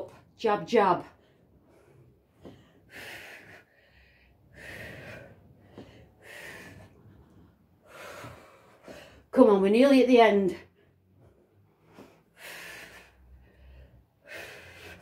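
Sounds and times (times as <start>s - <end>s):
woman breathing hard: 1.2s - 9.3s, 11.8s - 15.0s.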